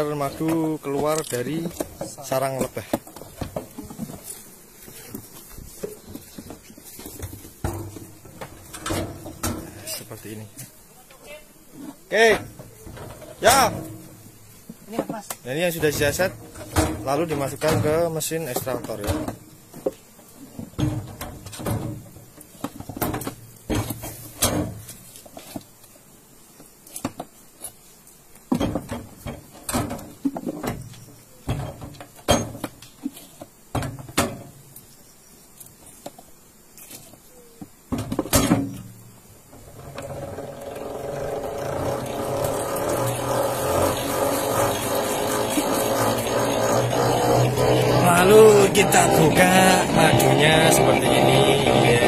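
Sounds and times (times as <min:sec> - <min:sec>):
extractor basket spinning whir: 0:39.6 - 0:52.0.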